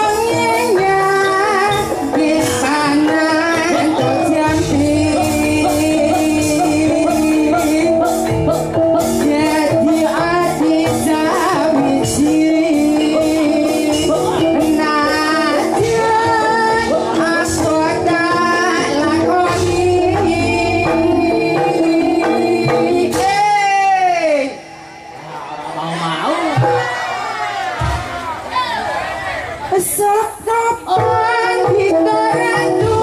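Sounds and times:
woman singing: 0:00.0 - 0:24.6, 0:29.7 - 0:33.0.

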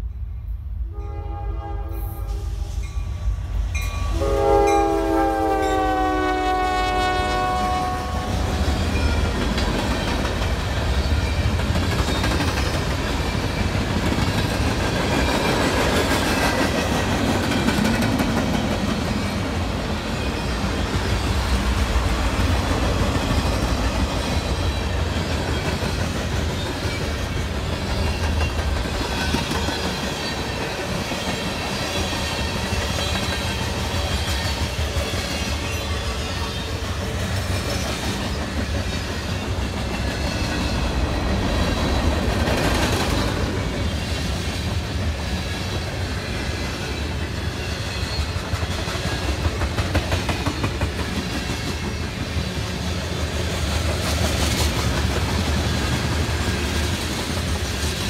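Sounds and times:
train horn: 0:00.9 - 0:02.9, 0:04.1 - 0:09.2
train wheel clatter and rumble: 0:03.1 - 0:58.0.

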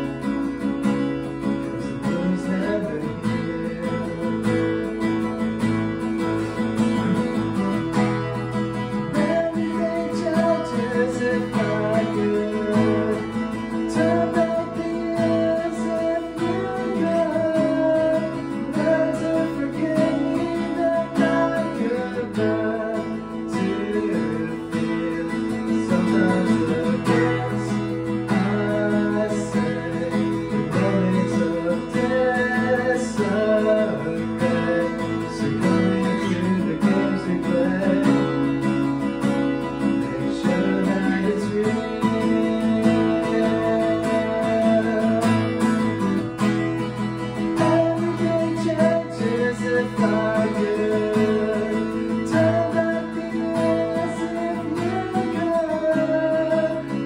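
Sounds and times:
acoustic guitar strumming: 0:00.0 - 0:57.0.

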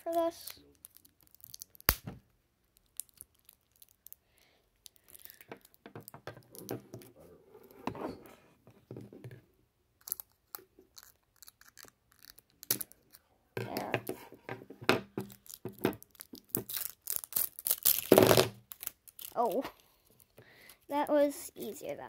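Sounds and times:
plastic packaging crinkling and tearing: 0:00.0 - 0:02.1, 0:02.7 - 0:04.2, 0:15.3 - 0:20.3.

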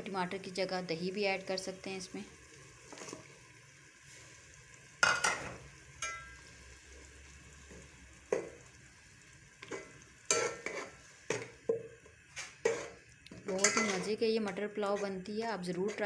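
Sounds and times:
tomatoes sizzling in oil: 0:00.0 - 0:16.0
ladle clinking against pot: 0:06.0 - 0:06.3.

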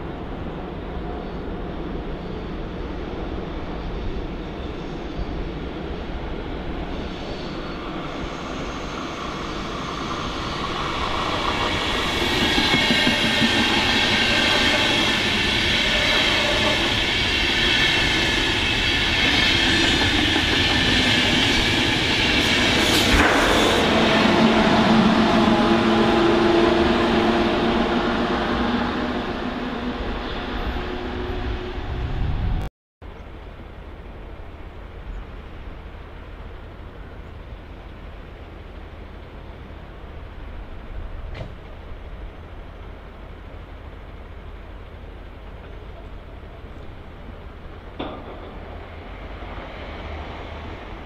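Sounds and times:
train wheels rolling: 0:05.4 - 0:31.4.

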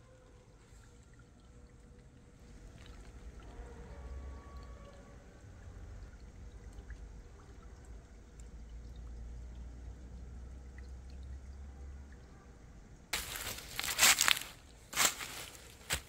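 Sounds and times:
stream trickling over rocks: 0:00.0 - 0:16.0
footsteps crunching dry leaves: 0:13.2 - 0:16.0.

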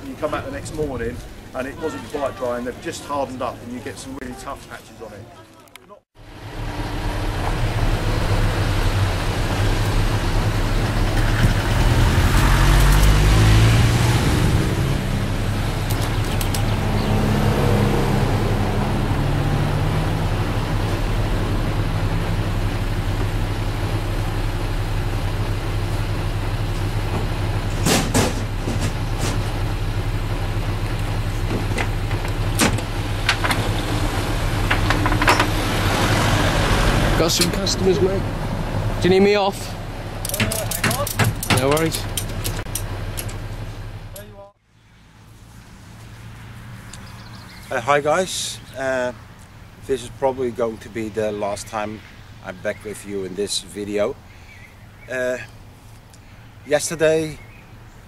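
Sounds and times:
vehicle engine running: 0:06.2 - 0:51.4
vehicle passing: 0:06.2 - 0:57.9.

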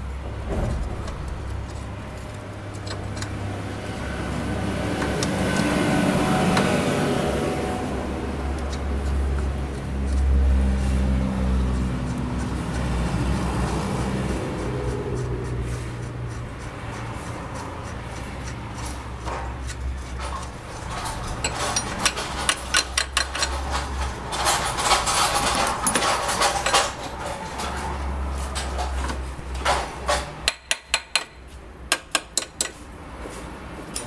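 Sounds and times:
low steady rumble: 0:00.0 - 0:19.1
metal tools clinking: 0:20.2 - 0:27.9
wrench clicking: 0:21.4 - 0:23.8.

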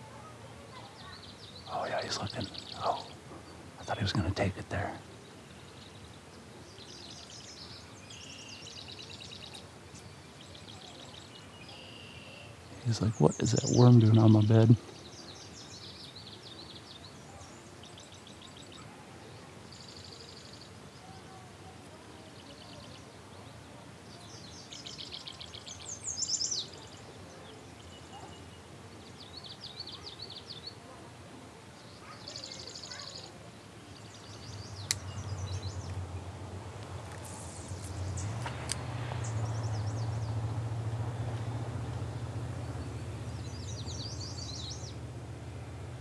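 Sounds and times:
faint outdoor hiss: 0:00.0 - 0:46.0
songbirds trilling: 0:00.0 - 0:46.0
sharp click: 0:34.8 - 0:35.1.

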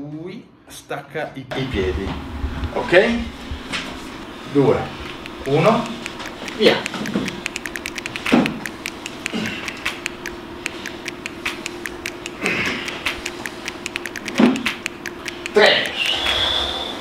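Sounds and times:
low steady hum: 0:01.5 - 0:17.0
rapid timer ticking: 0:05.1 - 0:16.3.

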